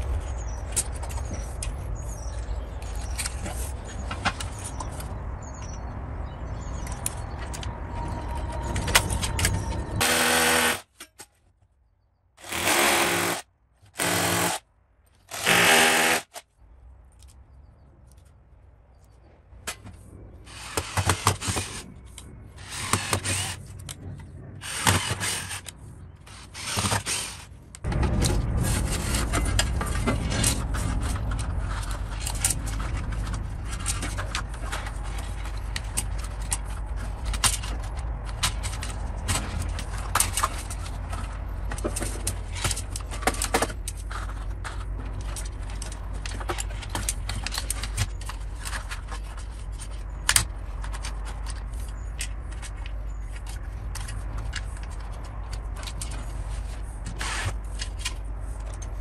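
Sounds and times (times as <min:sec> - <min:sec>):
steady low rumble: 0:00.0 - 0:10.5, 0:16.6 - 0:26.7, 0:27.5 - 0:57.0
cordless drill bursts: 0:12.4 - 0:13.4, 0:14.0 - 0:14.6, 0:15.3 - 0:16.3.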